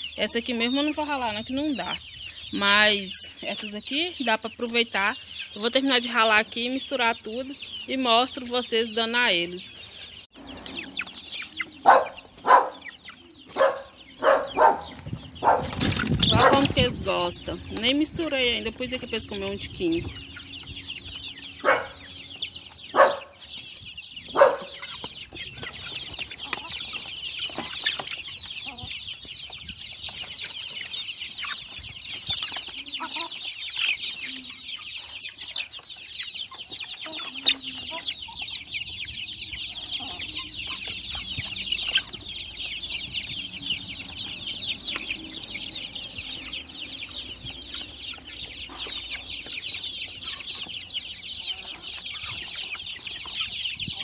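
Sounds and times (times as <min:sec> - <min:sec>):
chicks peeping: 0:00.0 - 0:54.0
loud chicken calls: 0:09.8 - 0:16.9, 0:20.0 - 0:54.0.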